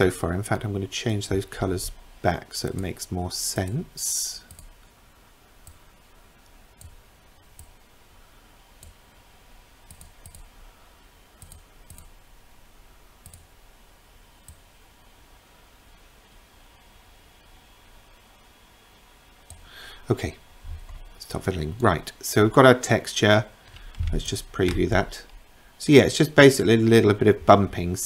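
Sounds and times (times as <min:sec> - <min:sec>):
computer mouse clicks: 0:04.5 - 0:04.7, 0:06.4 - 0:07.8, 0:09.8 - 0:10.5, 0:11.4 - 0:12.1, 0:13.2 - 0:13.5, 0:14.4 - 0:14.6.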